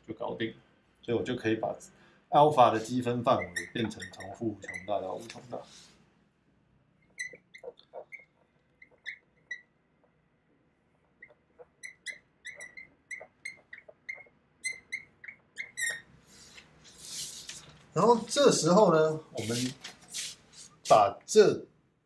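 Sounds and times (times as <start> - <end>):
marker squeaking on whiteboard: 2.7 - 6.0, 7.0 - 17.8.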